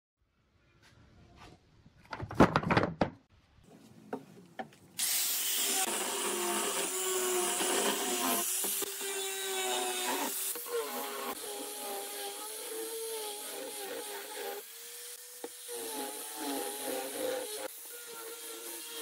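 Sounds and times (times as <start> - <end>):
angle grinder sanding wood: 5.0 - 19.0.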